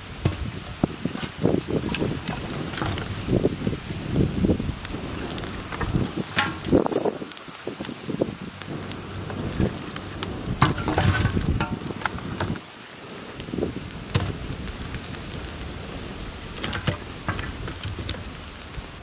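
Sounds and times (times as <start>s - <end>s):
wood fire crackling: 0.0s - 19.0s
sticks knocking and rattling: 0.2s - 3.2s, 5.4s - 7.1s, 10.6s - 12.6s.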